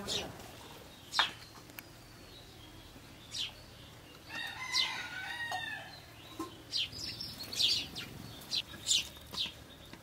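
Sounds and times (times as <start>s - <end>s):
bird chirp: 0.0s - 10.0s
rooster crowing: 4.3s - 6.1s.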